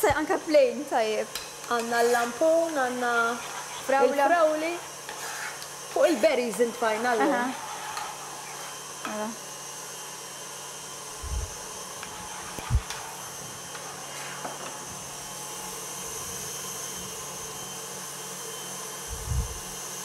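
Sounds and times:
motor whirring hum: 0:11.0 - 0:13.8, 0:18.4 - 0:19.8.

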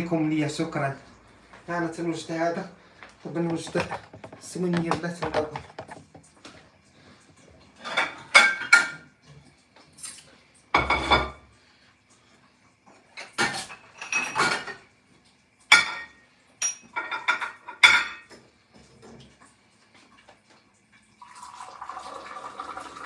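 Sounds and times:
dishes and glasses clinking: 0:03.5 - 0:06.2, 0:07.8 - 0:09.1, 0:10.8 - 0:11.4, 0:13.2 - 0:14.9, 0:15.7 - 0:18.4.

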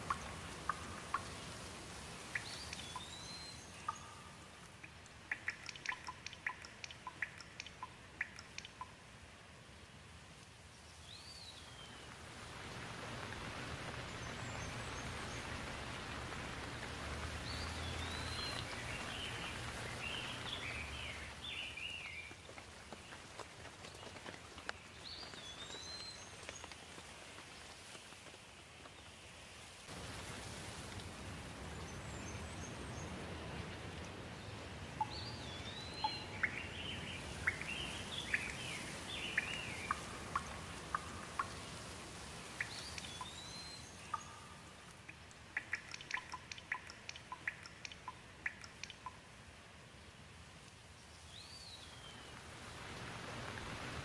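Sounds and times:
sharp drip ticks: 0:00.0 - 0:09.2, 0:13.1 - 0:27.1, 0:34.9 - 0:49.6
rain falling: 0:00.0 - 0:54.0
bird twittering: 0:02.3 - 0:04.4, 0:05.3 - 0:08.9, 0:35.0 - 0:41.6, 0:42.6 - 0:49.2.

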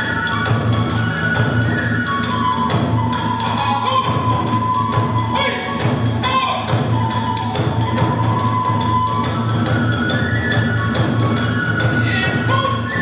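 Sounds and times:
bamboo flute melody: 0:00.0 - 0:13.0
taiko drums beating: 0:00.0 - 0:13.0.

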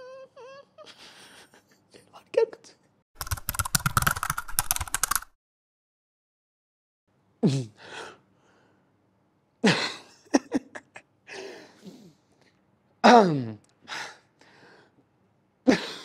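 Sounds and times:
rapid clicking sound effect: 0:03.2 - 0:05.4.

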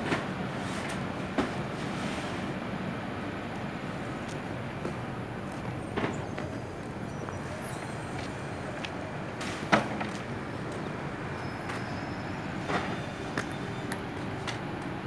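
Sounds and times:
container yard rumble: 0:00.0 - 0:15.0.

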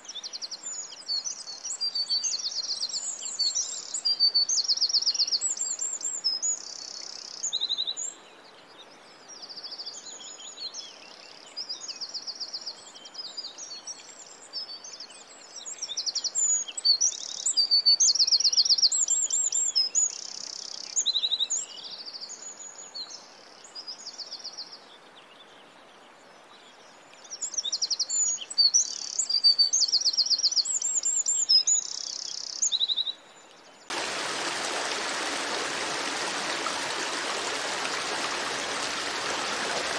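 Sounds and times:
songbirds chirping and singing: 0:31.4 - 0:39.9
rushing water: 0:33.9 - 0:39.9.

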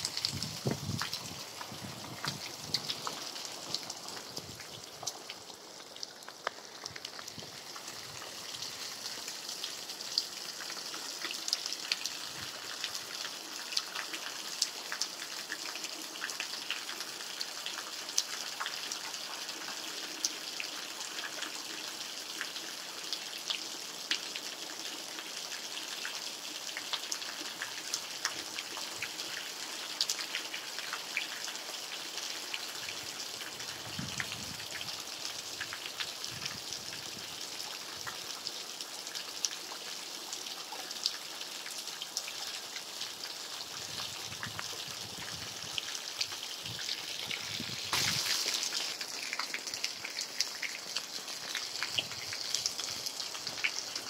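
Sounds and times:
raindrops ticking: 0:00.0 - 0:17.0, 0:45.7 - 0:54.0
steady rain: 0:00.0 - 0:54.0.

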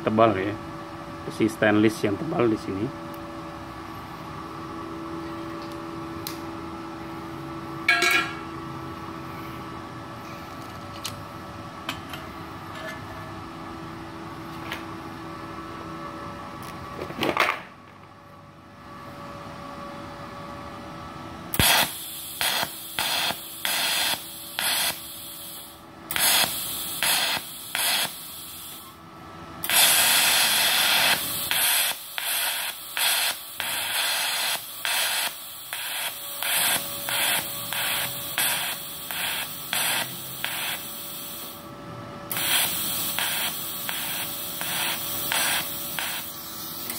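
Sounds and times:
welder faint hum: 0:21.5 - 0:29.0, 0:29.6 - 0:41.7, 0:42.3 - 0:46.9
welding arc hissing: 0:21.5 - 0:29.0, 0:29.6 - 0:41.7, 0:42.3 - 0:46.9.

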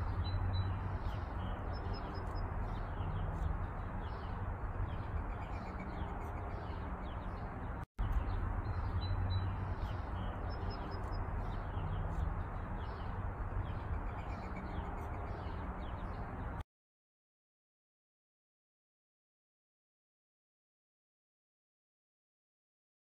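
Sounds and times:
low outdoor rumble: 0:00.0 - 0:16.6
small birds chirping: 0:00.0 - 0:16.6.

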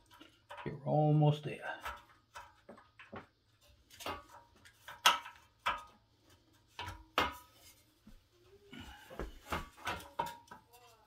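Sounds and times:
metal clinking and knocking: 0:00.0 - 0:00.8, 0:01.7 - 0:07.6.

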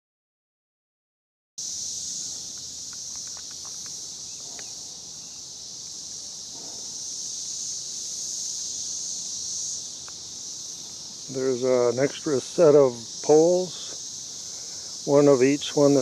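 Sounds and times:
insects chorus: 0:01.6 - 0:16.0
faint clicks: 0:02.5 - 0:04.7.

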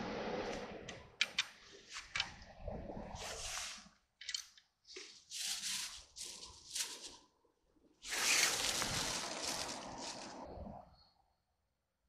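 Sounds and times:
plastic bag crinkling: 0:08.1 - 0:10.4.

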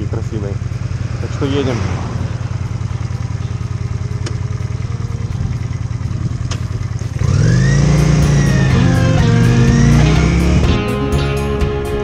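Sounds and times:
motorcycle engine running: 0:00.0 - 0:12.0
electric guitar music: 0:03.0 - 0:12.0.

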